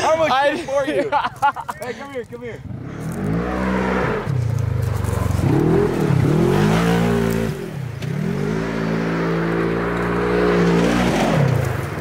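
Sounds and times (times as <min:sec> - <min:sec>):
engine revving hard: 0:02.6 - 0:04.4, 0:05.3 - 0:11.7
wheels spinning on gravel: 0:02.9 - 0:07.8, 0:09.4 - 0:12.0.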